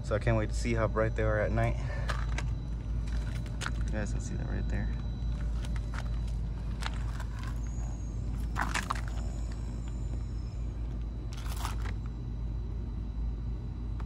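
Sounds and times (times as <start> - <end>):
low rumble: 0.0 - 12.9
footsteps on gravel: 2.0 - 4.0, 5.3 - 10.3, 11.3 - 12.0.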